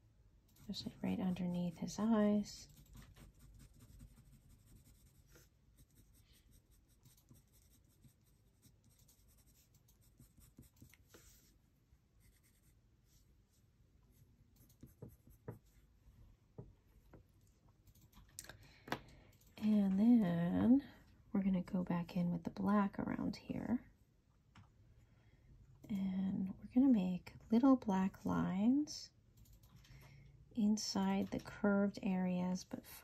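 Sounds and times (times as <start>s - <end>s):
colored pencil scratching on paper: 0.6s - 11.6s, 12.2s - 13.2s, 14.1s - 15.9s.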